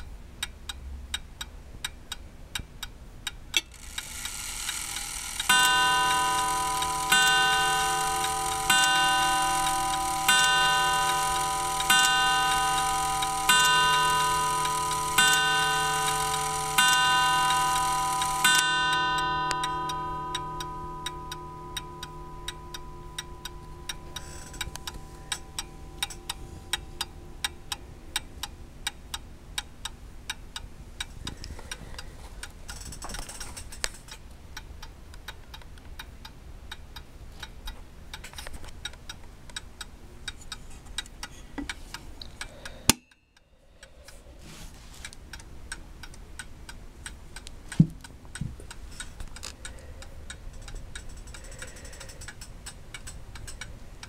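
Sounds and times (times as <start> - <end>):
clock ticking: 0.0 - 33.9, 45.0 - 54.0
clock chime ringing: 3.7 - 28.1.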